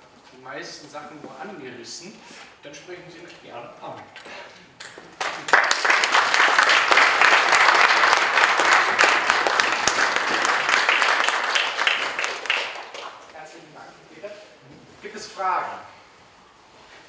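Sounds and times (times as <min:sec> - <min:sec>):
audience applauding: 0:04.8 - 0:13.3.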